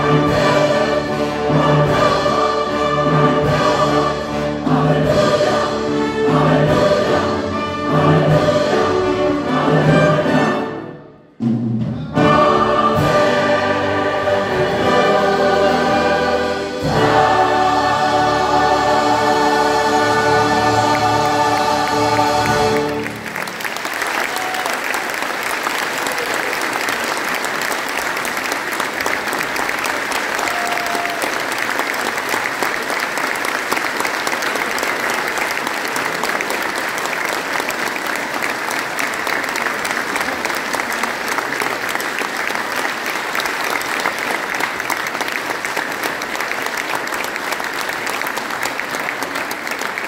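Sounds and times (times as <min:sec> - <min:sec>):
large audience applauding: 0:17.4 - 0:50.0.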